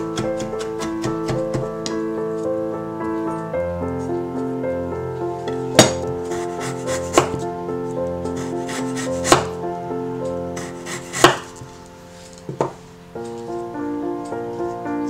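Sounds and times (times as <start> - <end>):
soft piano music: 0.0 - 15.0
knife chopping on wooden board: 0.1 - 1.7, 7.0 - 7.4, 8.7 - 9.5, 10.6 - 11.5.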